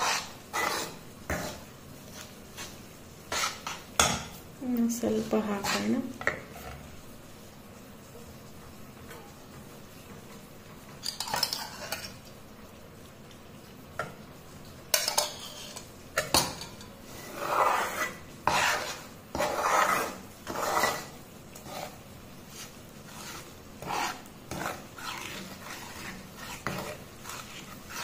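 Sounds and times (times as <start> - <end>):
steel ladle scraping a metal pan: 0.0 - 1.6, 3.3 - 3.8, 11.0 - 12.2, 14.9 - 28.0.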